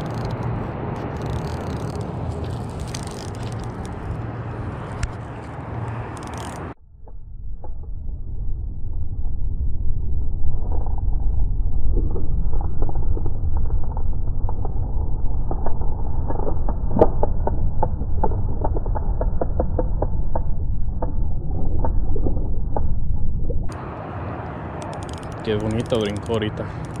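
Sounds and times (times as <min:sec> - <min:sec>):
wind rumbling on microphone: 0:00.0 - 0:27.0
small clicks and knocks: 0:24.8 - 0:27.0.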